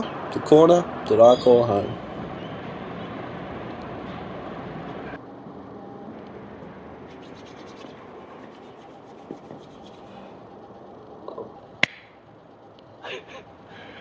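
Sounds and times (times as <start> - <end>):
hands rubbing together: 7.1 - 10.1
sharp click: 11.8 - 12.1.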